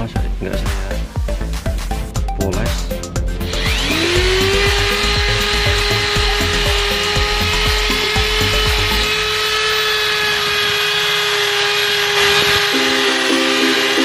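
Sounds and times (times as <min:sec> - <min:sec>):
electric drill motor whine: 0:03.3 - 0:14.0.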